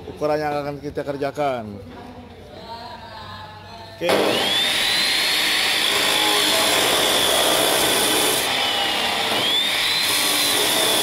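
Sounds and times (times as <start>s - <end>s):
cut-off saw grinding steel: 4.1s - 11.0s.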